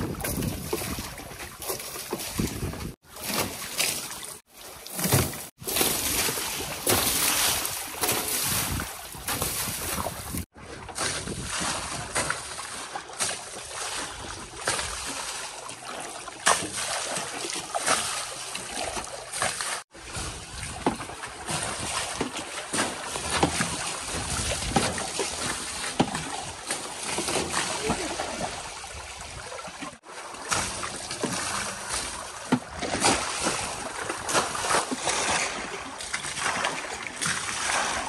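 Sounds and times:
shallow water sloshing: 0.0 - 38.0
water splashing off vehicles: 3.0 - 10.5.

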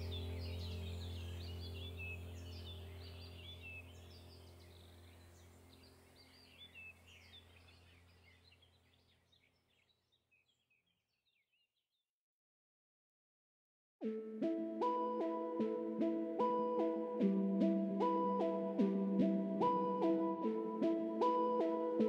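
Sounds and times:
steady low drone: 0.0 - 5.8, 14.0 - 22.0
birds chirping: 0.0 - 11.6.

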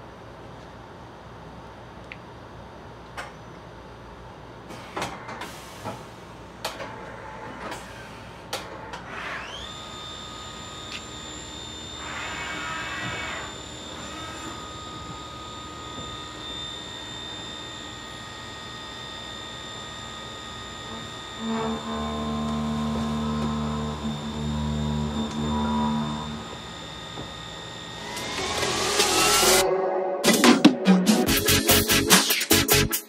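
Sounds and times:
spindle whine: 9.4 - 32.1.

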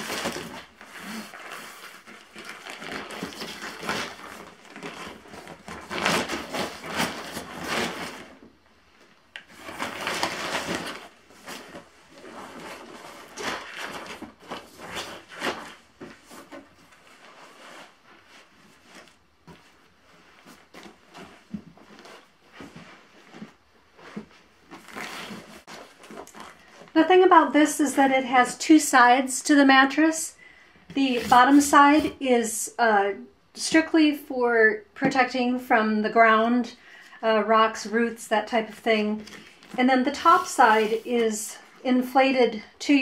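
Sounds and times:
sleeping pad fabric crinkling: 0.0 - 27.0.

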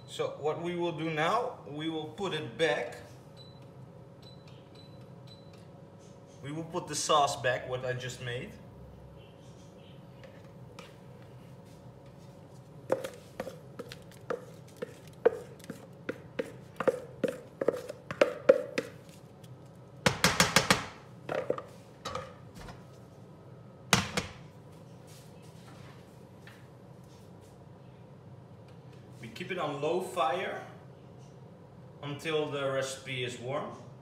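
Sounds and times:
wooden spatula tapping a pan: 16.1 - 19.0.

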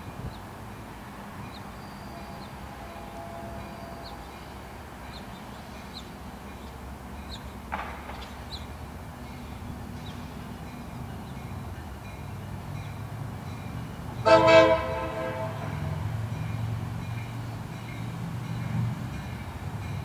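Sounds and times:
diesel locomotive engine rumble: 0.0 - 20.0
locomotive horn blast: 2.2 - 4.2, 14.2 - 16.1.

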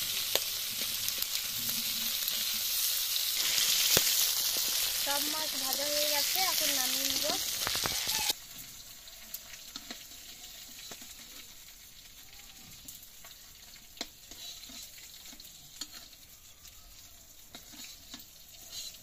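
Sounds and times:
hot oil sizzling in a wok: 0.0 - 19.0
metal spatula scraping a pan: 9.5 - 11.8, 13.2 - 16.3, 17.4 - 19.0.

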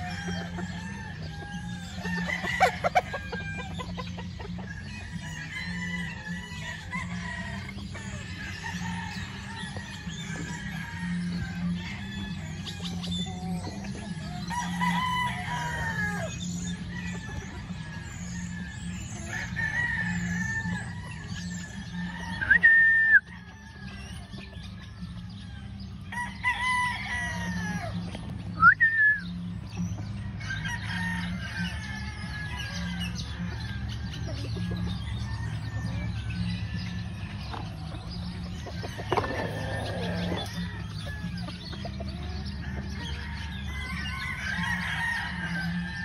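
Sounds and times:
hens clucking: 0.0 - 46.0
roosters crowing: 0.0 - 46.0.

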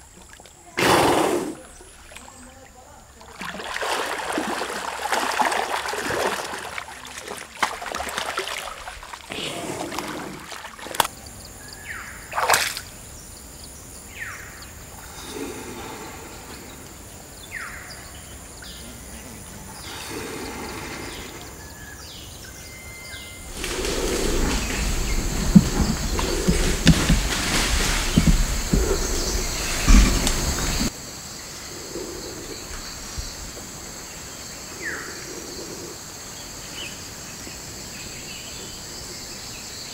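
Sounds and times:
water splashing and sloshing: 1.6 - 11.2, 12.3 - 13.0, 23.4 - 31.0
low rumbling noise: 23.4 - 30.9.

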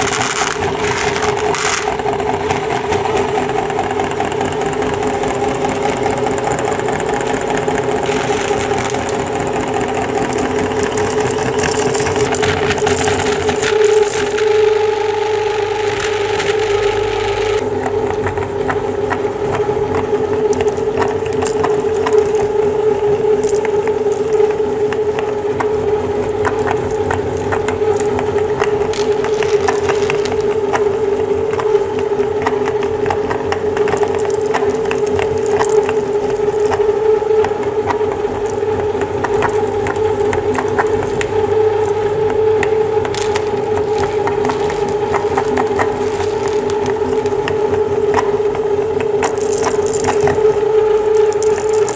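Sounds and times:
crackles and crunches: 0.0 - 3.5, 4.3 - 51.9
meat grinder motor humming: 0.0 - 51.9.

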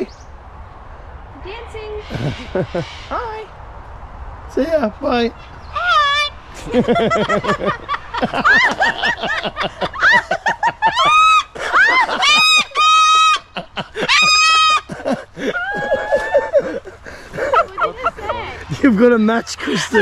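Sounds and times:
woman laughing: 2.0 - 2.8, 6.6 - 18.7, 19.6 - 20.0
cockatoo mimicking laughter: 2.0 - 3.2, 5.8 - 18.6.

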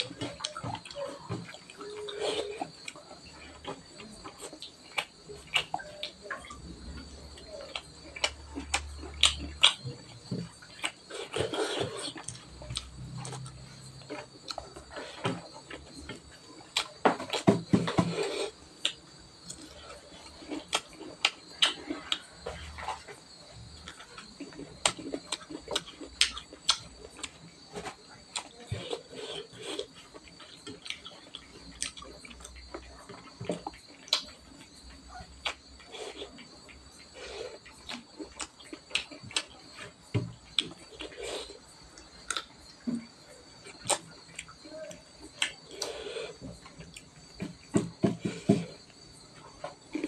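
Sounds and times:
chewing rice: 0.0 - 50.0.

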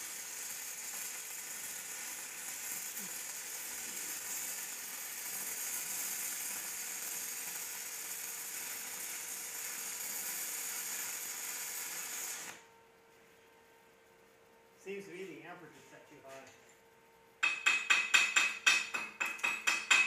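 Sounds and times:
welding arc crackling and hissing: 0.0 - 12.6.

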